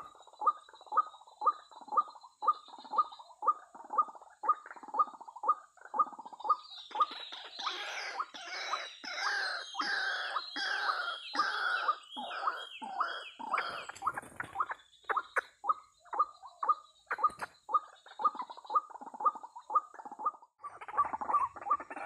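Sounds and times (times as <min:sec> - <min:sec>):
waterhens calling: 0:06.0 - 0:22.0.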